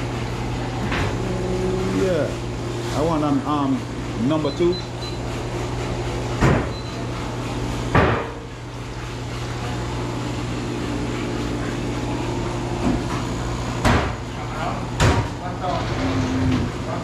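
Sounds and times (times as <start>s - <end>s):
sharp knocks: 13.8s - 14.2s.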